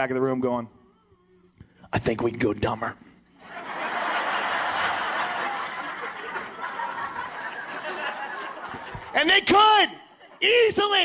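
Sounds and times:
audience laughing: 3.4s - 9.2s.

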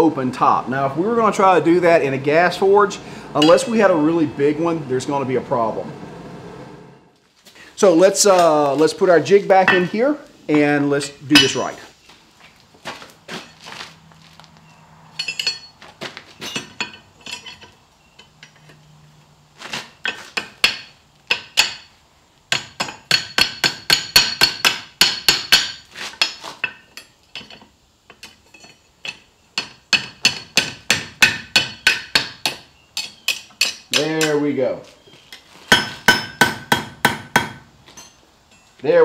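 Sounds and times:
hammer striking steel on anvil: 3.4s - 4.2s, 11.4s - 11.7s, 22.5s - 26.8s, 29.1s - 34.4s, 35.7s - 38.2s.

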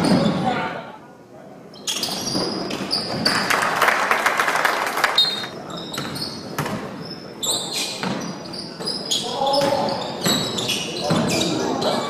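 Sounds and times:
sneaker squeaks: 0.0s - 0.5s, 1.7s - 3.6s, 5.1s - 12.0s.

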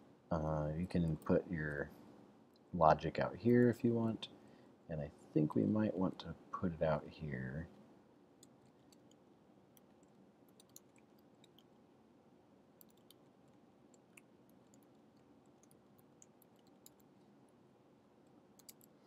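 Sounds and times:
low room hum: 0.0s - 19.0s
keyboard typing: 9.8s - 11.7s, 12.8s - 17.2s, 18.6s - 19.0s.

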